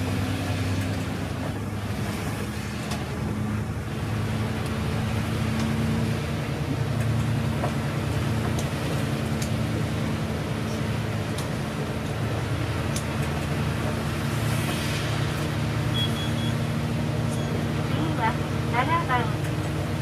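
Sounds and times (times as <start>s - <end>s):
bus engine drone: 0.0s - 20.0s
tyres hissing on wet road: 8.1s - 17.8s.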